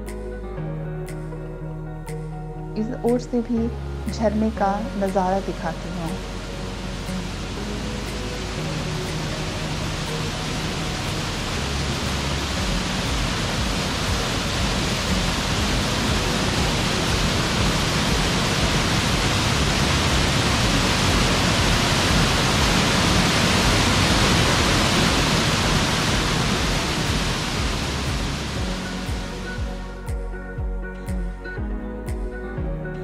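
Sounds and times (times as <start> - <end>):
waterfall rushing over rocks: 5.8 - 29.9.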